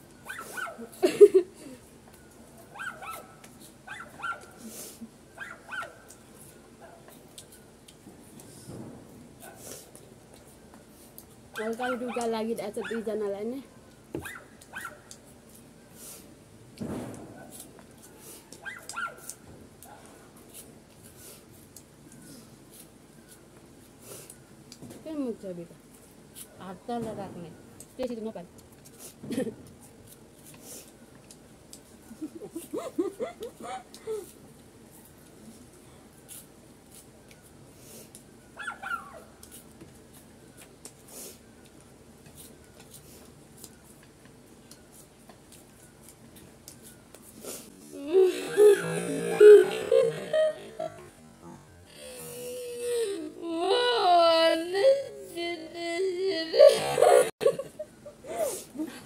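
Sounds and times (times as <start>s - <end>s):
short sniffs: 4.6s - 5.1s, 9.4s - 9.9s, 15.9s - 16.4s, 18.1s - 18.5s, 20.5s - 21.5s, 24.0s - 24.4s, 30.5s - 31.0s, 37.7s - 38.2s, 41.0s - 41.4s, 47.3s - 47.9s
high-pitched cry: 48.0s - 51.0s, 51.9s - 57.6s
squeaky whimper: 48.0s - 51.0s.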